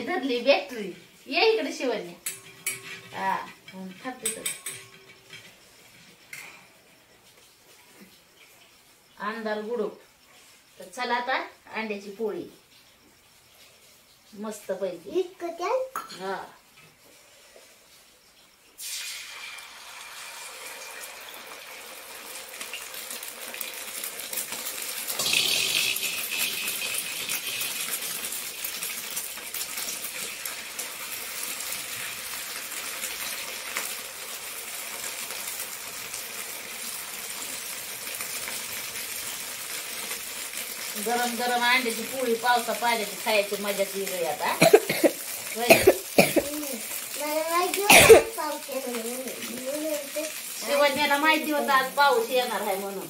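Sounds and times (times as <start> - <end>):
flatbread sizzling in a pan: 0.0 - 53.0.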